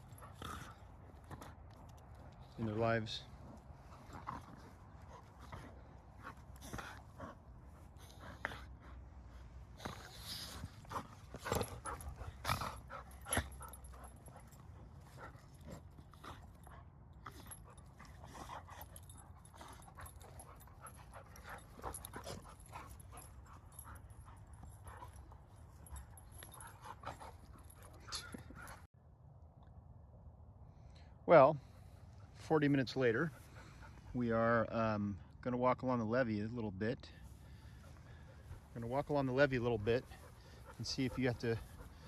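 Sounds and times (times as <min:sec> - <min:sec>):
dogs play-wrestling: 0:00.0 - 0:28.9, 0:37.3 - 0:42.0.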